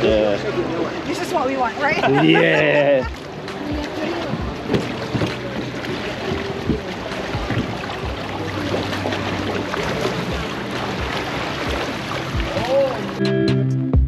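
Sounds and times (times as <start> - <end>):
wind: 0.0 - 13.3
boat engine running: 0.0 - 13.4
water noise: 0.0 - 13.5.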